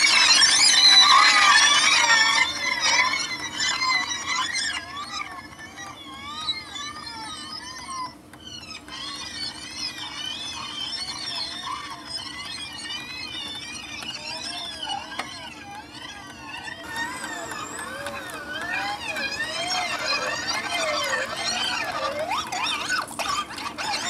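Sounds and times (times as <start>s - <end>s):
tape recorder warbling chatter: 0.0s - 24.0s.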